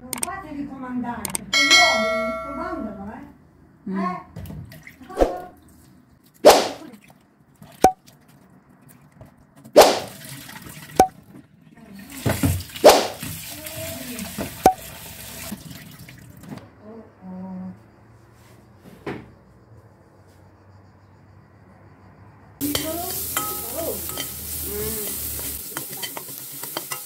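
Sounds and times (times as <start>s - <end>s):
sharp knocks and clinks: 1.4s - 3.0s
water running from a tap: 9.8s - 11.1s, 11.8s - 16.5s, 22.6s - 27.0s.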